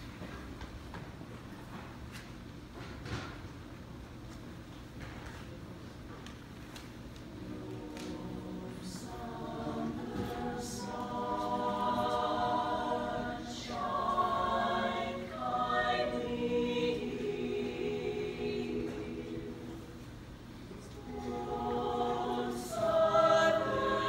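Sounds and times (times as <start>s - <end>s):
choir singing a cappella: 7.3s - 24.0s.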